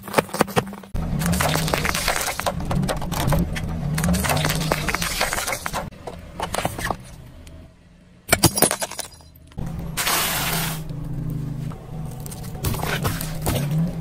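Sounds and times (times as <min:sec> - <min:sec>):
tyre crushing paint tubes: 0:00.0 - 0:07.1, 0:12.1 - 0:14.0
car humming: 0:00.6 - 0:14.0.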